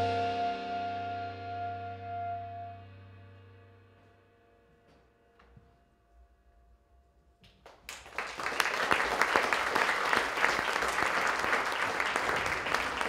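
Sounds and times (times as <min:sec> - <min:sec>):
audience applause: 0:07.7 - 0:13.0.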